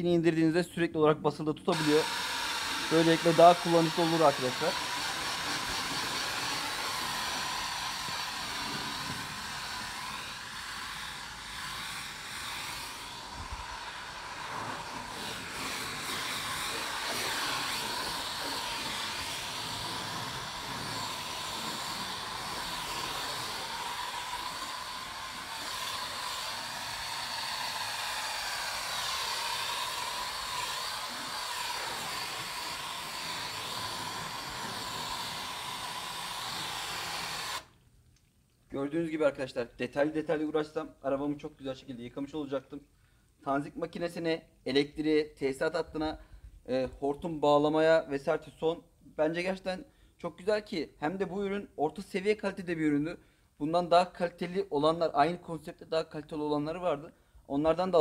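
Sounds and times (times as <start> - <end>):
water spraying onto a car: 1.9 - 37.8.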